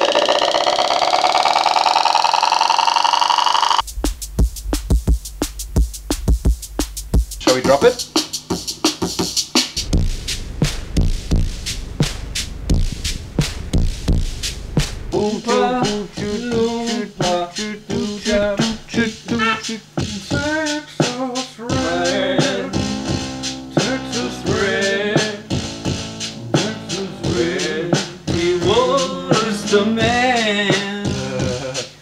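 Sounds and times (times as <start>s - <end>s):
gliding keyboard lines: 0.0s - 3.8s
slowed drum machine beat: 0.0s - 32.0s.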